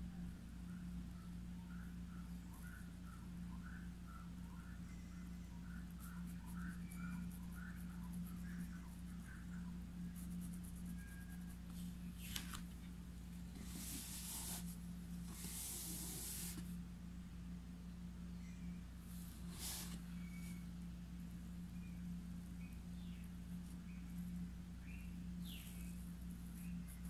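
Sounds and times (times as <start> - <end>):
steady low hum: 0.0 - 27.0
paintbrush scratching on fabric: 5.9 - 12.2, 13.5 - 16.7.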